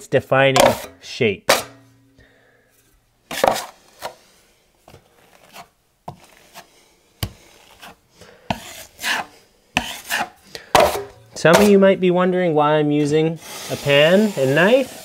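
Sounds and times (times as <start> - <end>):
taping knife scraping metal pan: 0.6 - 1.9, 3.3 - 4.2, 7.4 - 11.8, 13.4 - 15.0
knife spreading compound on drywall: 3.3 - 4.3, 5.1 - 11.8, 13.0 - 15.0.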